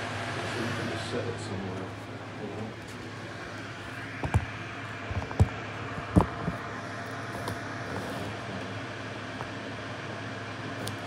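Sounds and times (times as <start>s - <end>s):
room hum: 0.0s - 11.0s
dull bumps from device handling: 4.2s - 4.5s.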